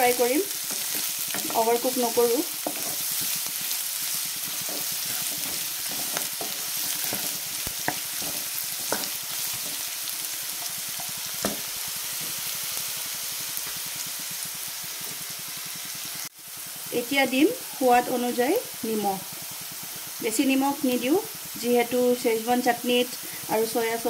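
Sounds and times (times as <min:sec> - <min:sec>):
vegetables sizzling in oil: 0:00.0 - 0:24.0
wooden spatula scraping pan: 0:00.6 - 0:09.9.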